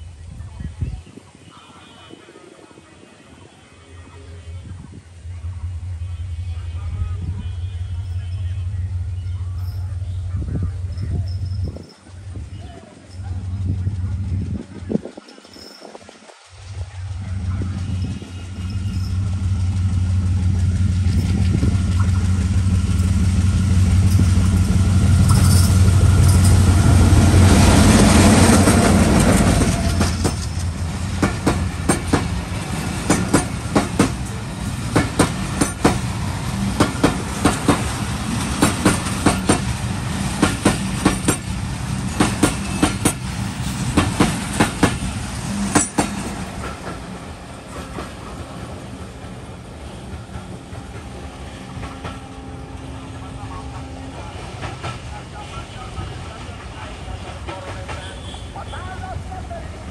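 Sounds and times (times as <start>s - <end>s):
diesel locomotive engine drone: 2.6s - 59.9s
train wheels clickety-clack: 17.4s - 52.4s, 54.3s - 55.2s, 56.3s - 58.9s.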